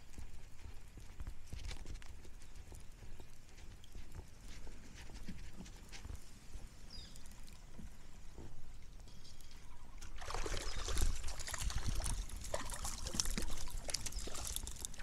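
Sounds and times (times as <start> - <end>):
water splashing and dripping: 7.1 - 15.0.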